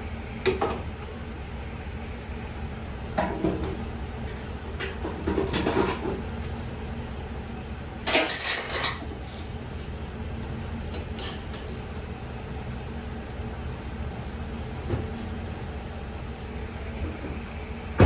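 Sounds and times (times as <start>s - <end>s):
metal clanks and rattles: 4.8s - 6.2s, 8.0s - 10.2s, 10.9s - 12.6s
steady low hum: 6.2s - 18.0s
chain clinks: 8.1s - 10.2s, 11.2s - 12.6s
metallic clatter: 8.1s - 10.2s.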